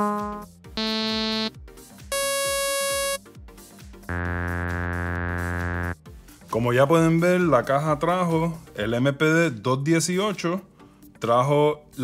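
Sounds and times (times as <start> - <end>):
synthesizer notes: 0.0 - 1.5, 2.1 - 3.2, 4.1 - 6.0.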